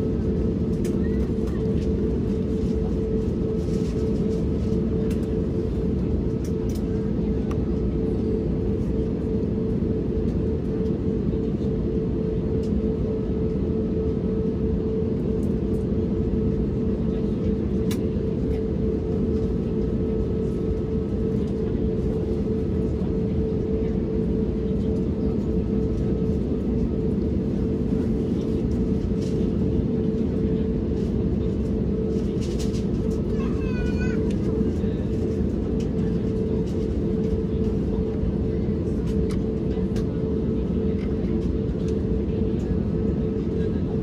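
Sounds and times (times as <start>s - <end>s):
airplane cabin rumble and hum: 0.0s - 44.0s.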